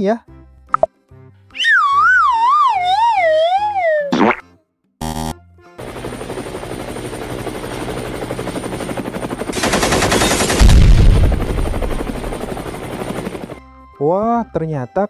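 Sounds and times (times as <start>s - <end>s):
helicopter rotor chopping: 5.8s - 13.6s
machine-gun fire: 9.5s - 12.6s
loud deep explosion: 10.5s - 11.6s.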